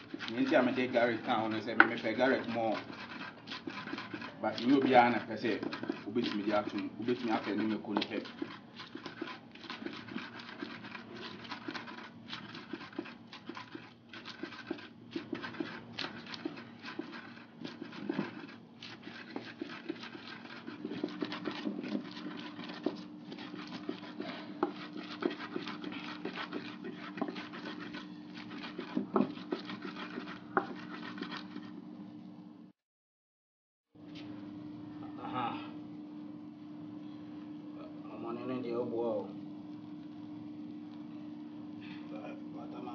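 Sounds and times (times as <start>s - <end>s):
wooden pestle grinding in clay bowl: 0.0s - 31.9s
steady low hum: 0.0s - 32.7s, 34.0s - 42.9s.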